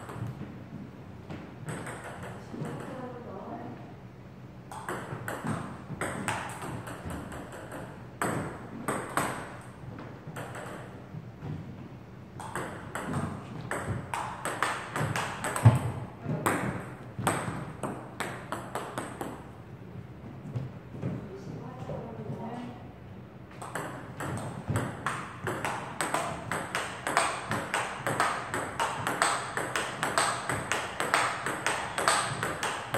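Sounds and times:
table tennis ball clicking: 12.4 - 15.9, 23.6 - 32.9.

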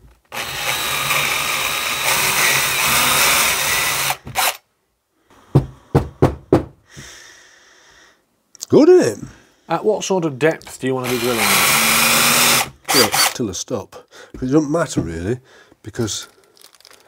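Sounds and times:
drill bit cutting metal: 0.4 - 4.6, 11.0 - 13.4.

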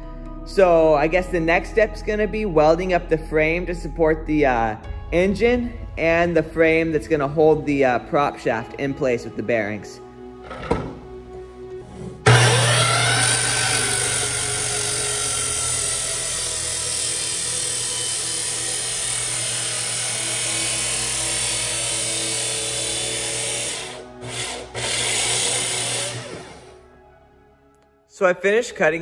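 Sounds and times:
miter saw cutting steel tubing: 11.9 - 26.8.

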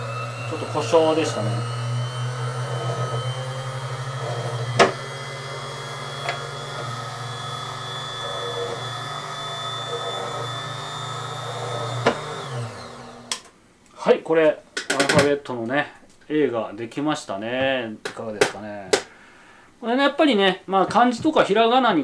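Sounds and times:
drill press motor whine: 0.0 - 13.4.

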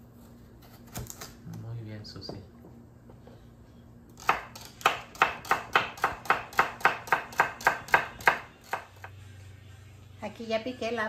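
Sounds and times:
knife chopping on wooden board: 4.2 - 9.1.

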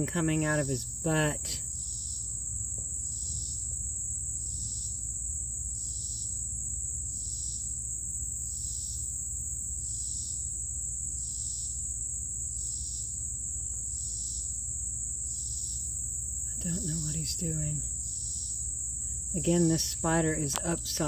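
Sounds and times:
insect chirping: 0.0 - 21.0
insect high-pitched trill: 0.0 - 21.0
low steady rumble: 15.9 - 21.0.

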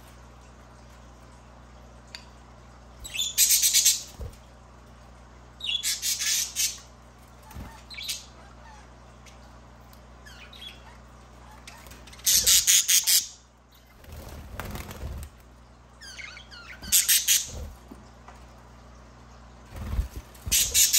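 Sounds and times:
budgerigars calling: 5.7 - 6.8, 12.2 - 13.4, 16.1 - 17.6, 20.5 - 20.9.

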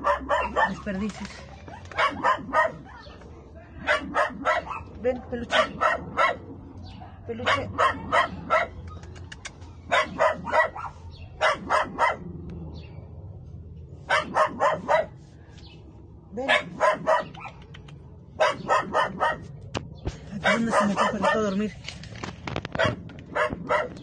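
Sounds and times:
dog barking: 0.0 - 0.9, 1.6 - 3.2, 3.8 - 8.9, 9.9 - 12.3, 14.1 - 15.2, 16.4 - 17.6, 18.4 - 19.5, 20.4 - 21.6, 22.8 - 24.0.

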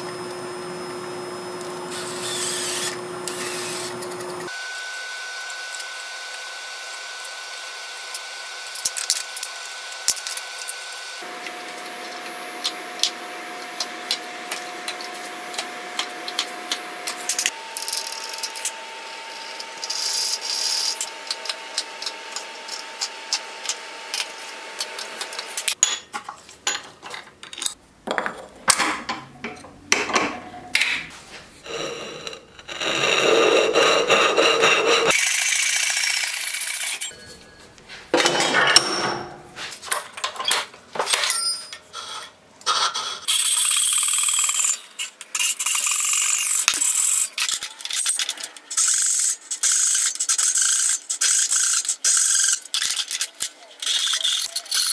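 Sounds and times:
hand tool scraping in wood: 31.3 - 35.2
hand saw cutting wood: 31.7 - 36.0.

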